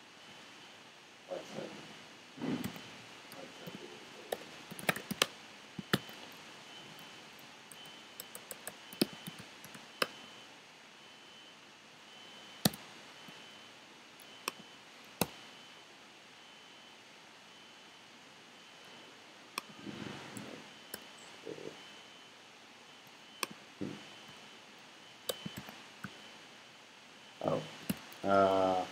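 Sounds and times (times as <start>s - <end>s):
keyboard typing: 2.6s - 7.1s, 7.7s - 10.2s, 25.3s - 26.2s, 27.8s - 28.2s.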